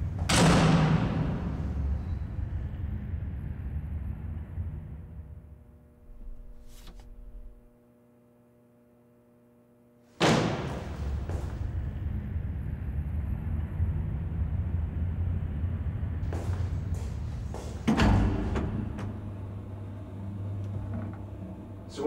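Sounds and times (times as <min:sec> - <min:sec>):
low rumble: 0:00.0 - 0:07.7, 0:11.0 - 0:17.5
faint steady hum: 0:00.0 - 0:22.0.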